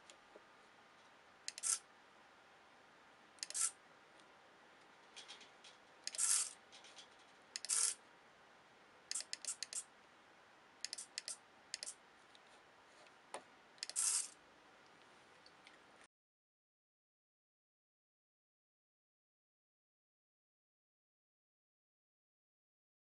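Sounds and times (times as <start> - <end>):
quick clicks: 1.5 - 1.8, 3.4 - 3.7, 5.2 - 8.0, 9.1 - 9.8, 10.8 - 12.0, 13.8 - 14.4
servo whirring: 1.5 - 1.8, 3.4 - 3.8, 6.1 - 6.6, 7.6 - 8.0, 13.8 - 14.3.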